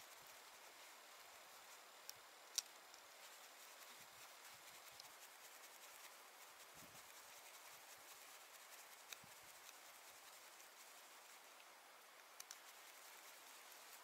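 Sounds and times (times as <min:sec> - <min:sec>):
faint rubbing of hands: 0:02.9 - 0:11.7, 0:12.4 - 0:14.0.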